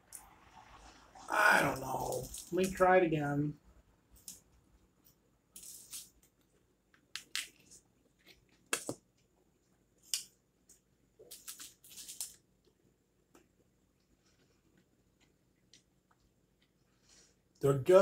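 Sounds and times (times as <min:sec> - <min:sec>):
paper wrappers crinkling: 0:05.6 - 0:06.3, 0:11.2 - 0:12.4.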